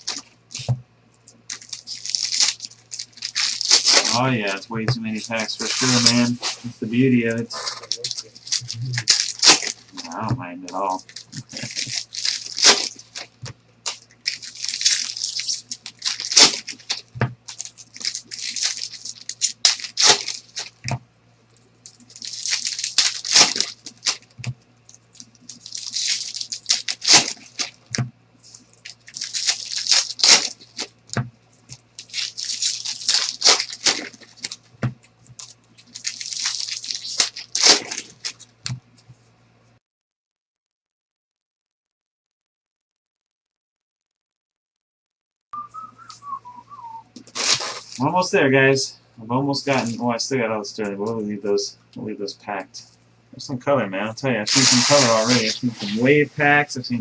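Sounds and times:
foil wrappers tearing and crinkling: 0.0 - 0.7, 1.4 - 20.9, 21.8 - 38.7, 47.2 - 48.1, 49.7 - 50.0, 54.5 - 56.2
low electrical hum: 0.0 - 39.8, 45.6 - 57.0.

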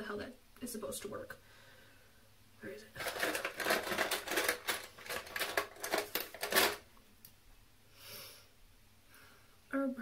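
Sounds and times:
makeup items clattering: 3.0 - 6.9.

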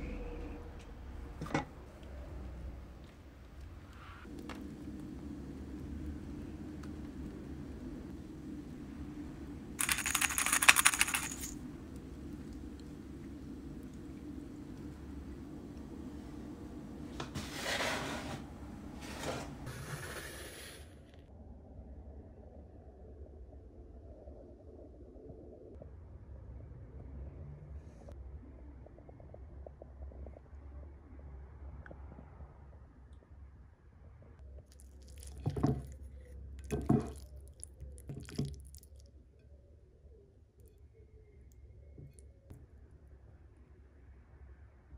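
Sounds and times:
steady low hum: 0.0 - 17.4
metal pan scraping countertop: 17.3 - 20.2.

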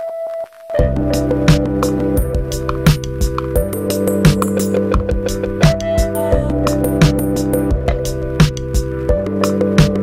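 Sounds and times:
drum beat: 1.5 - 9.2.

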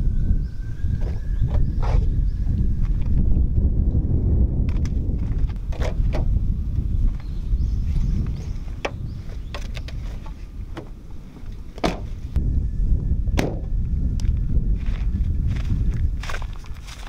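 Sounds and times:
wind rumbling on microphone: 0.0 - 17.0
car door shutting: 11.8 - 12.2.

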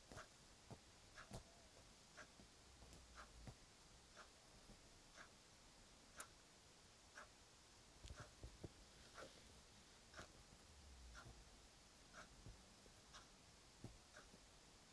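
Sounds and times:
faint even ticking: 10.0 - 14.6.

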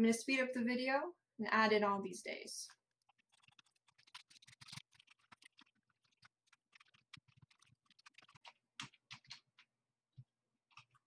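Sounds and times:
computer keyboard typing: 3.1 - 9.4.

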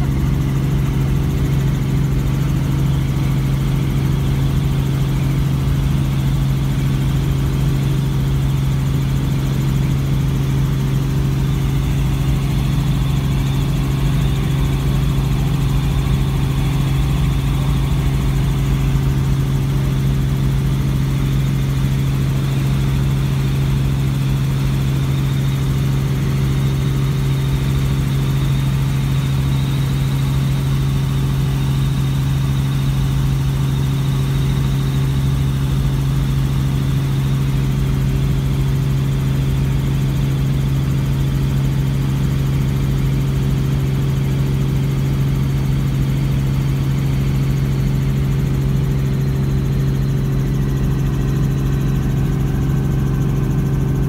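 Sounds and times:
faint high whine: 0.0 - 33.5
helicopter cabin drone: 0.0 - 54.0.

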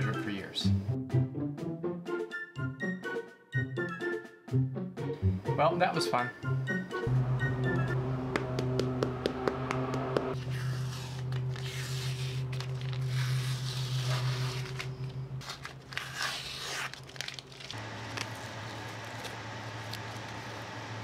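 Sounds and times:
steady low hum: 7.1 - 21.0
masking tape tearing: 10.5 - 20.6.

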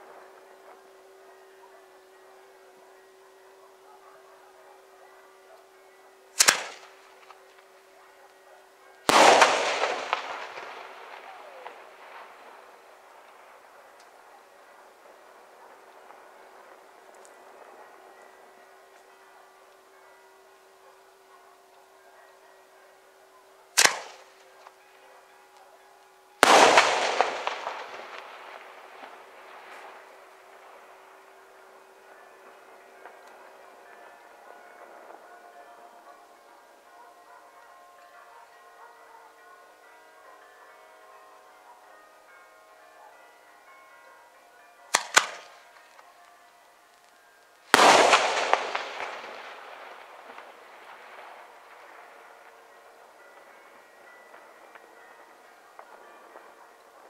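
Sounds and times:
rolling echo: 0.0 - 40.8, 41.4 - 57.0
firework shells bursting: 6.4 - 7.4, 9.1 - 13.0, 26.4 - 30.8, 47.7 - 52.1
firework crackling: 9.1 - 14.1, 26.4 - 31.1, 47.7 - 52.2.

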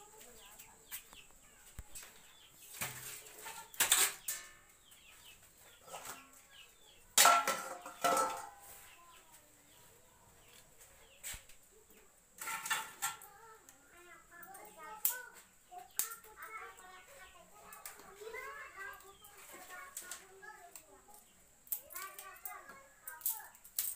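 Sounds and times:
chicks peeping: 0.0 - 7.2, 17.1 - 19.9.

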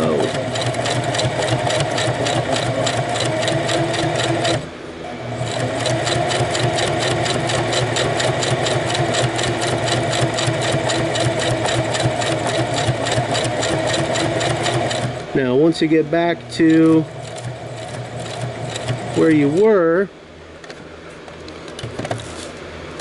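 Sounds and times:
sewing machine stitching: 0.0 - 4.7, 5.3 - 15.3, 16.7 - 19.7.

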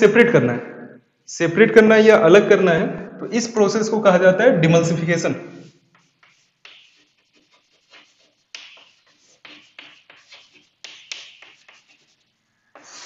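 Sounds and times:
chalk scratching on a chalkboard: 5.6 - 13.0.

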